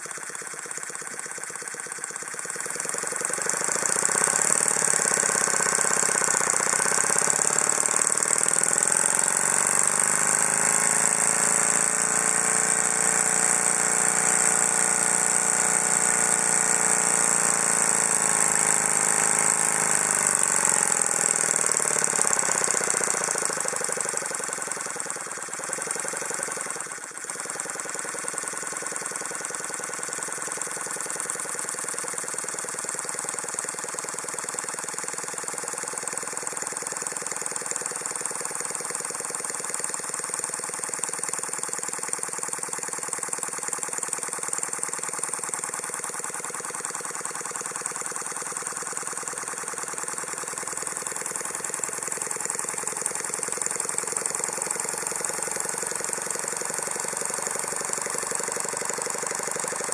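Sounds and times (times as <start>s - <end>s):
model steam engine exhaust chatter: 0.0s - 59.9s.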